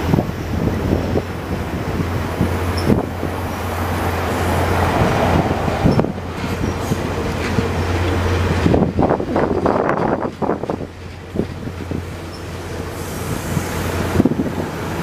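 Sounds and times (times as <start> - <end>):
train wheels rumbling on rails: 0.0 - 15.0
train wheels clacking: 4.1 - 15.0.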